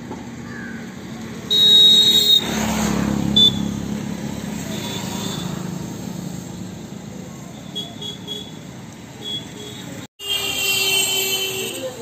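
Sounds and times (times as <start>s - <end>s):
vehicle passing by: 2.4s - 7.4s
vehicle horn: 9.2s - 12.0s.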